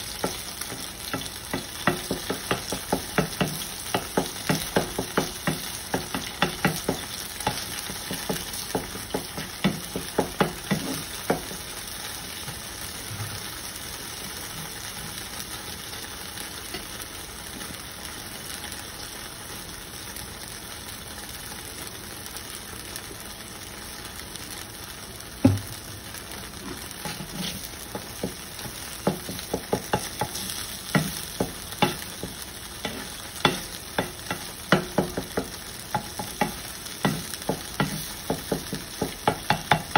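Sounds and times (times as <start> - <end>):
eggs sizzling in a skillet: 0.0 - 39.9
metal spatula scraping a pan: 26.6 - 27.8, 32.8 - 34.5.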